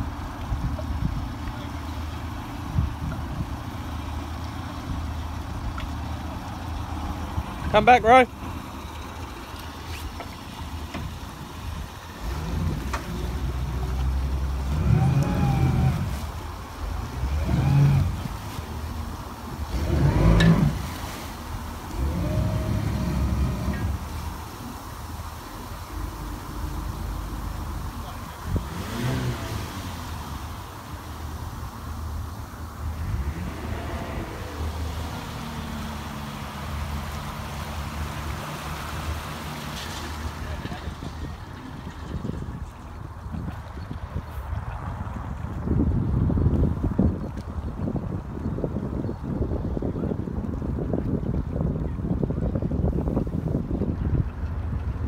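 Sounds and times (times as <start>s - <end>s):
steady low rumble: 0.0s - 38.4s
engine revving: 12.1s - 18.7s, 19.6s - 21.2s, 21.9s - 24.3s, 25.7s - 30.4s, 33.0s - 40.9s.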